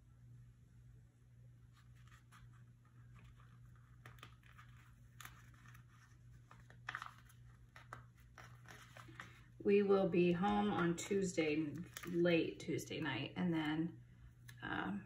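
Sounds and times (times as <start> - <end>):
glossy pages rustling: 1.7 - 9.6, 10.2 - 13.0.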